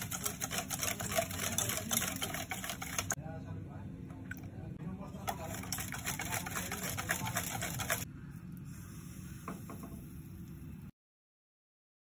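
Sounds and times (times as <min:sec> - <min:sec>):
batter beaten in metal bowl: 0:00.0 - 0:03.2, 0:05.1 - 0:08.1.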